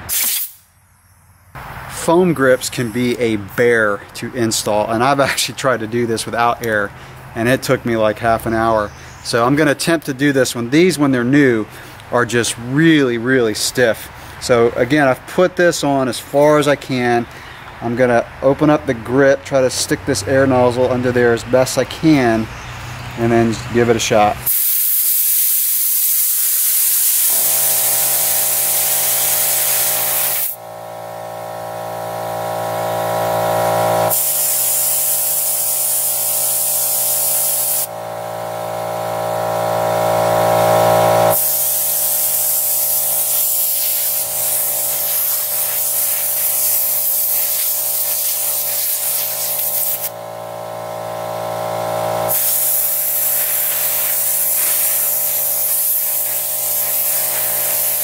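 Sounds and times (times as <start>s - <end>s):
compressed air hissing: 0.0s - 3.3s, 24.4s - 58.0s.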